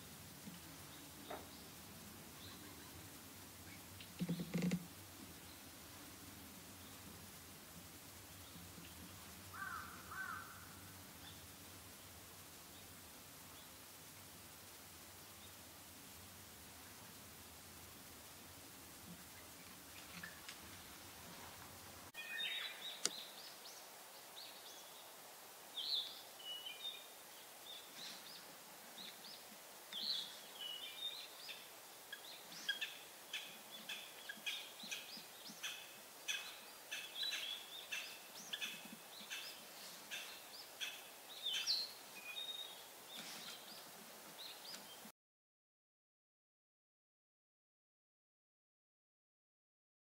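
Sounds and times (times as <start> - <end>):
woodpecker calling: 3.6 - 4.9, 9.5 - 10.7, 29.9 - 42.7.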